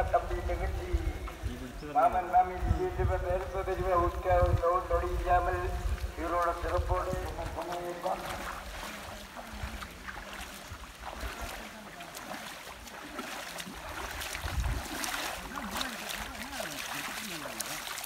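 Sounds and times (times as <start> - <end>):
wind on microphone: 0.0 - 7.7, 13.8 - 15.8
bare feet splashing in water: 0.0 - 18.0.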